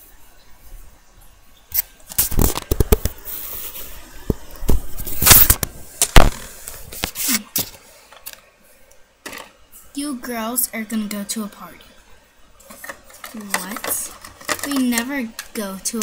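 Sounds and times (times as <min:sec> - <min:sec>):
rustling and scraping: 0:01.8 - 0:08.5, 0:12.6 - 0:16.0.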